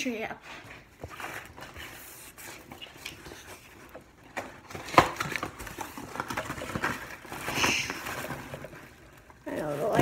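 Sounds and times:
cardboard box rustling: 0.7s - 10.0s.

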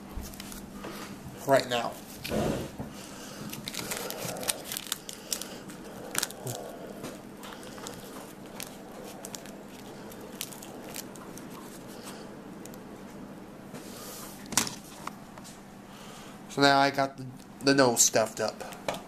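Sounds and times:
aluminium foil crackling: 3.3s - 12.8s.

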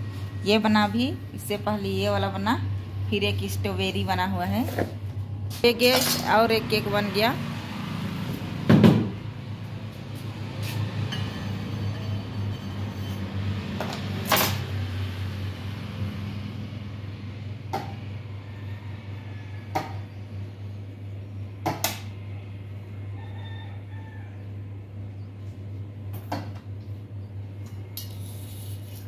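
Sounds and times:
steady low hum: 0.0s - 13.6s.

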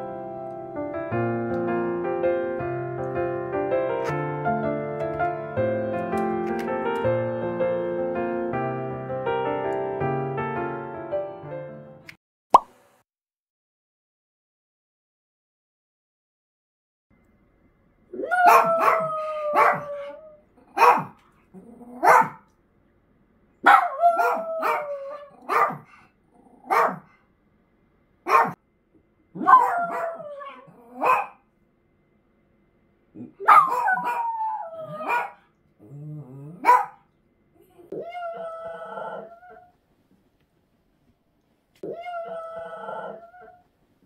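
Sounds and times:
dog barking and howling: 18.2s - 21.2s, 21.8s - 22.4s, 23.6s - 25.9s, 26.6s - 27.1s, 28.3s - 28.6s, 29.4s - 31.4s, 33.2s - 35.4s, 36.4s - 37.0s, 37.7s - 39.7s, 41.8s - 43.6s.

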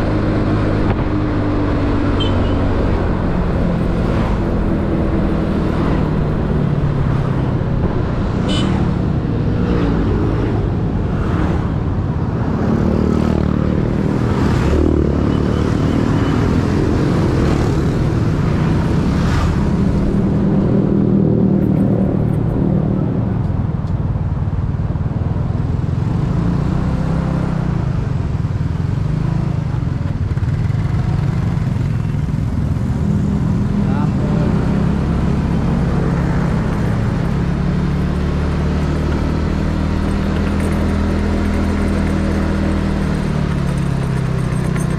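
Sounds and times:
road and traffic noise: 0.0s - 44.9s
vehicles passing: 0.0s - 44.9s
scooter engine running: 36.3s - 44.9s.

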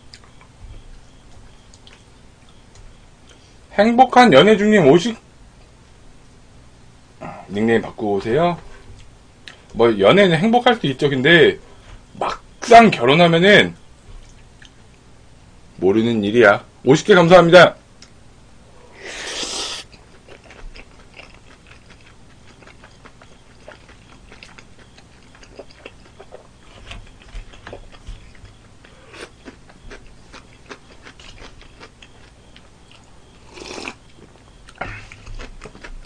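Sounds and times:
wet chewing: 19.4s - 36.0s.

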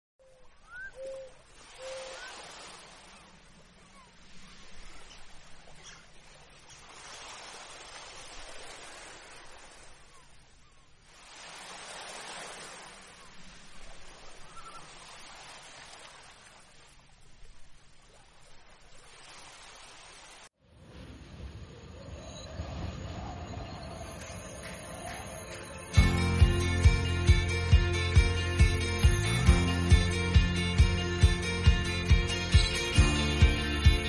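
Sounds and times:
faint rising chirps: 21.6s - 26.0s.

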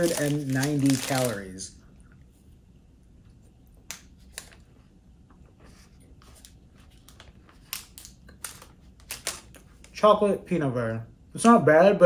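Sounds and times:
plastic wrapper crackling: 0.0s - 1.6s, 7.0s - 9.6s.

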